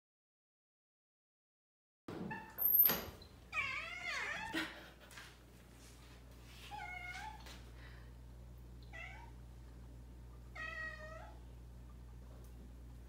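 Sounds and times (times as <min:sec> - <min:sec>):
cat meowing: 0:03.5 - 0:04.6, 0:08.9 - 0:09.4, 0:10.5 - 0:11.4
steady low hum: 0:07.4 - 0:13.0.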